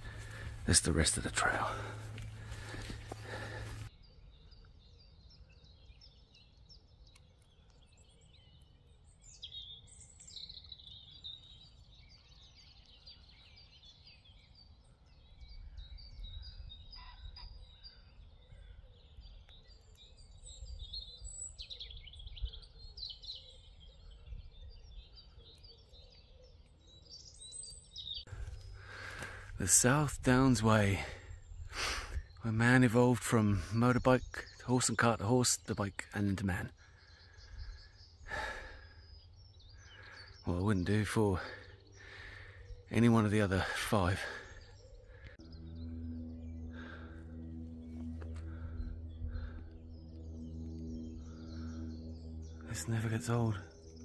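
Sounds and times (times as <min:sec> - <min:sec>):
low rumble: 0:00.0 - 0:03.9, 0:43.6 - 0:54.0
small birds singing: 0:00.0 - 0:54.0.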